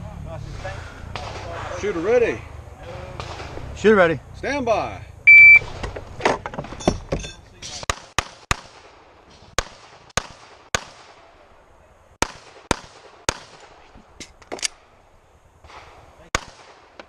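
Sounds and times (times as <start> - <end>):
pistol shots: 3.2 - 3.6, 7.9 - 11.3, 12.2 - 13.8, 15.6 - 17.0.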